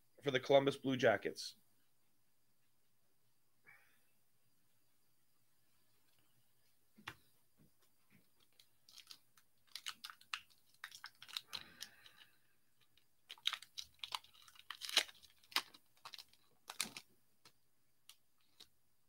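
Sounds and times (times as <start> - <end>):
foil wrapper tearing and crinkling: 8.4 - 18.7.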